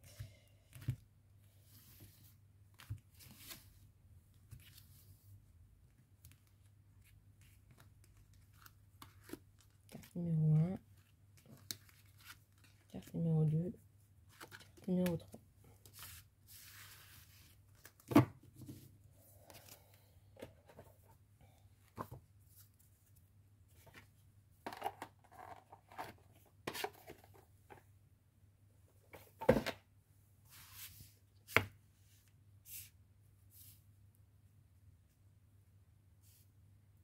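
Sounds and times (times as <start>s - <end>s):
cards sliding and rustling: 1.6s - 3.8s, 11.0s - 12.8s, 15.8s - 18.8s, 32.7s - 32.9s.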